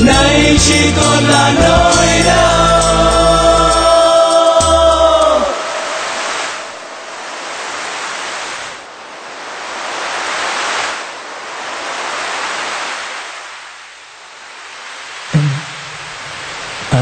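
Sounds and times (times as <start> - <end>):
waves washing onto shore: 3.6 - 17.0.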